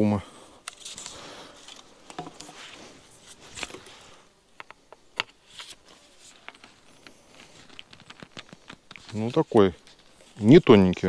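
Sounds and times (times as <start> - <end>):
light rustling: 5.4 - 11.0.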